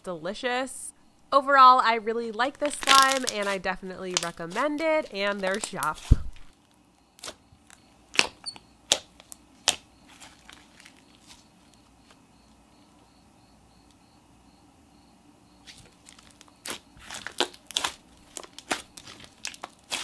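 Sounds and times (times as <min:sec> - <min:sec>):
slime popping: 0:02.6 - 0:06.5, 0:08.1 - 0:10.9, 0:16.1 - 0:20.0.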